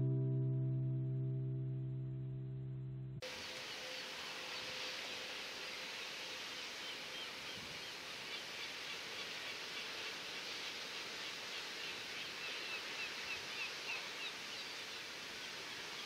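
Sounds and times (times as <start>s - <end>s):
birds chirping: 3.4s - 16.0s.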